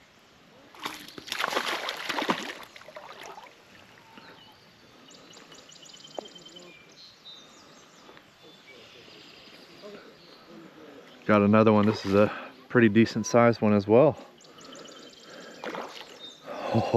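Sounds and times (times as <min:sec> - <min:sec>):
water splashing with slaps: 0:00.8 - 0:03.6, 0:11.8 - 0:12.3, 0:15.6 - 0:16.2.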